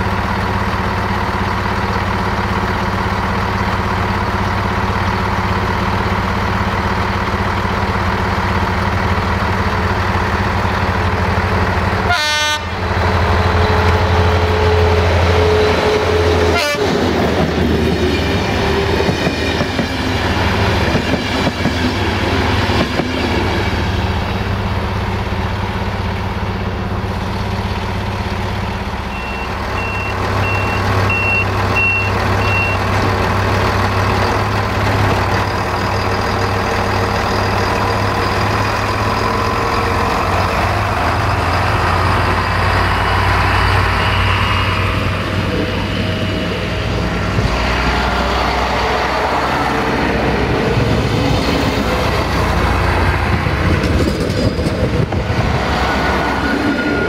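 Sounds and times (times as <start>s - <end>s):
locomotive engine humming: 0.0s - 57.0s
train horn: 12.0s - 12.8s, 14.4s - 17.0s
coaches rattling on rails: 12.9s - 25.2s, 48.4s - 57.0s
high beeps: 29.1s - 32.9s.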